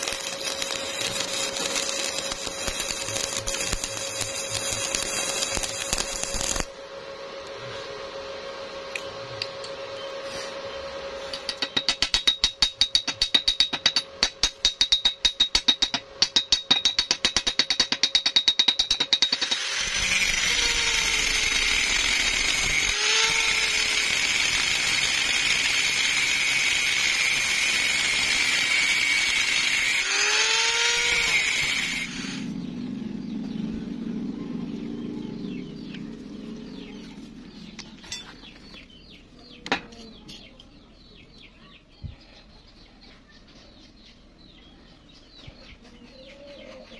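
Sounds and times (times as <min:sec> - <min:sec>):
angle grinder whining on steel: 0:00.0 - 0:06.8, 0:18.3 - 0:32.6
metallic tapping on steel: 0:11.4 - 0:19.6.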